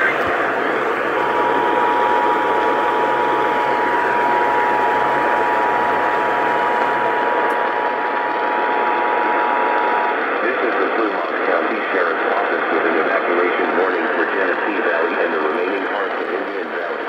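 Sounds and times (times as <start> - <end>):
two-tone alarm: 0.0 - 10.2
radio static hiss: 0.0 - 17.0.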